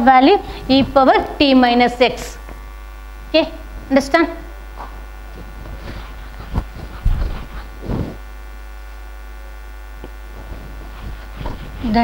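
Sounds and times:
electrical mains hum: 0.0 - 12.0
soft bumps: 5.4 - 8.2.

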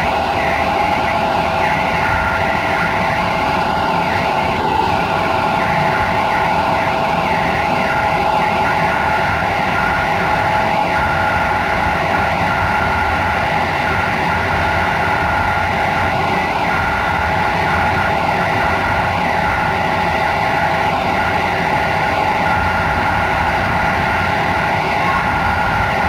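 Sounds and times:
constant whine: 0.0 - 26.0.

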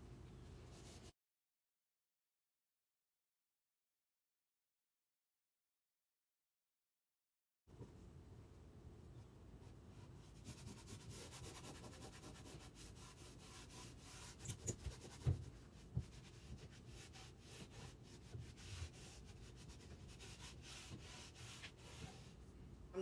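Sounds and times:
cloth rubbing on wood: 10.4 - 22.4.

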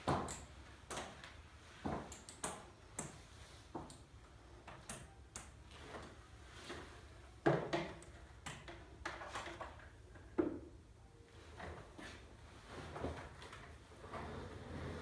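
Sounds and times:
office chair rolling on wooden floor: 11.5 - 15.0.

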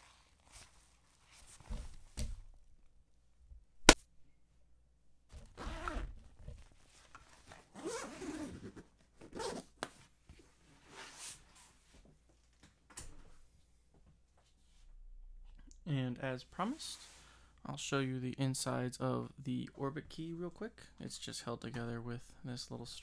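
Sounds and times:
zippers rasping: 5.5 - 6.2, 7.7 - 9.6
bag fabric handled: 5.5 - 9.7.

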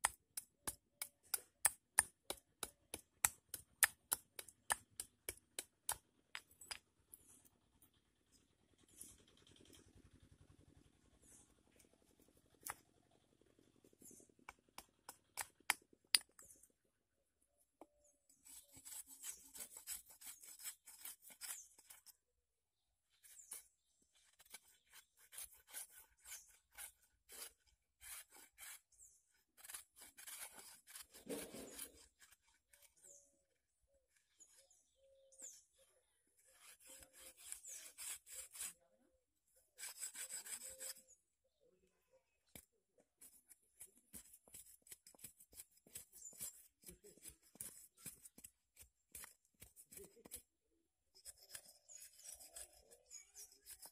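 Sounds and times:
stone scraping wooden stick: 0.0 - 7.4, 14.0 - 16.7, 18.3 - 22.2, 23.2 - 33.3, 36.4 - 38.8, 39.7 - 41.2, 42.5 - 50.5, 51.1 - 53.9.

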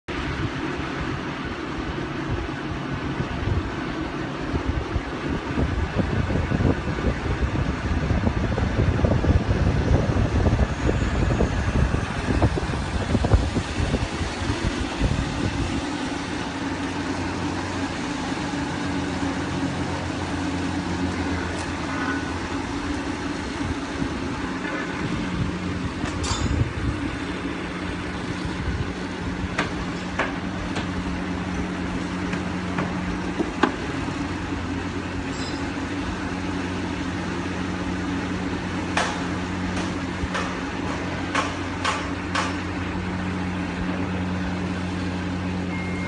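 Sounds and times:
wind buffeting microphone: 0.1 - 34.8.

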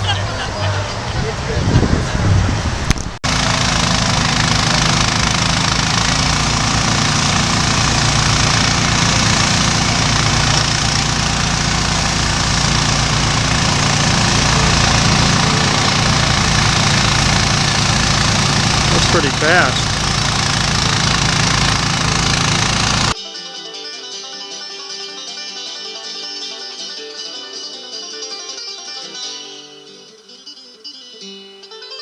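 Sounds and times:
sawmill engine sawing log: 3.2 - 23.2.

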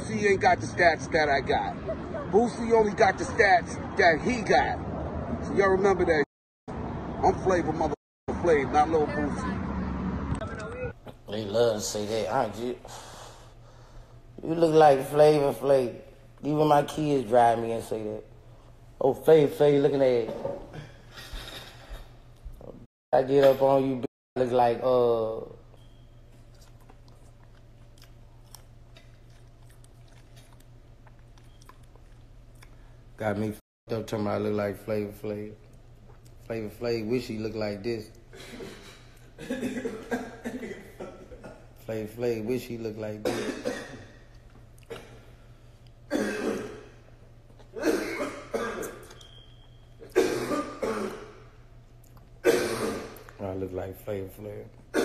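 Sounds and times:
man coughing: 38.3 - 41.8, 43.2 - 44.2, 44.8 - 45.3, 46.1 - 47.0, 47.7 - 49.1, 50.0 - 51.5, 52.4 - 53.2.

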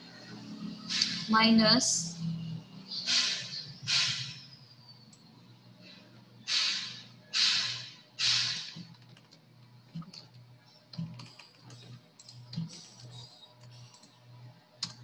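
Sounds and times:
computer keyboard clicks: 8.2 - 14.2, 14.8 - 15.0.

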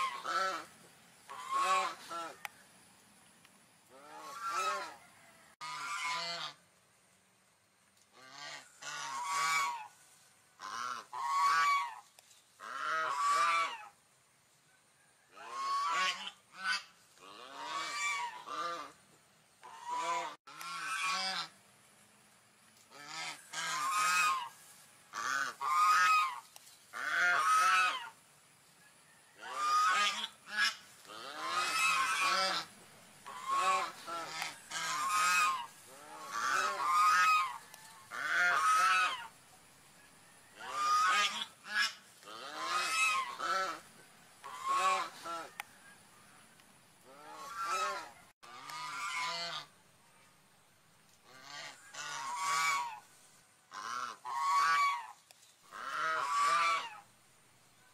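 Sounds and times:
swans calling: 0.0 - 2.5, 3.8 - 5.0, 8.1 - 14.0, 15.4 - 19.0, 19.6 - 21.6, 22.8 - 28.3, 29.4 - 39.5, 40.6 - 46.1, 47.0 - 49.8, 51.2 - 57.1.

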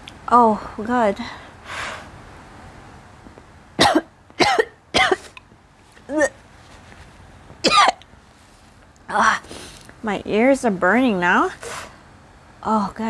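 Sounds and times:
woman coughing: 3.8 - 5.4, 7.6 - 8.0.

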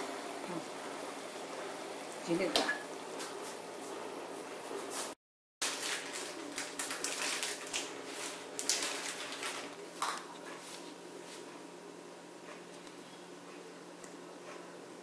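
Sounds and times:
baking paper rustling and crinkling: 4.8 - 11.5.

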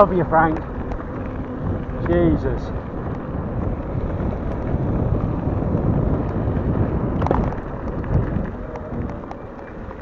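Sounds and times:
bike tyres rumbling over gravel: 0.0 - 10.0
wind buffeting microphone: 0.0 - 10.0
clatter of knocks: 7.2 - 9.8.

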